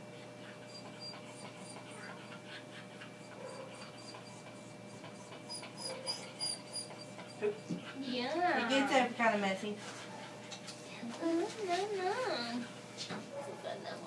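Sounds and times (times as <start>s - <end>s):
small dog whining faintly: 0.5s - 8.0s.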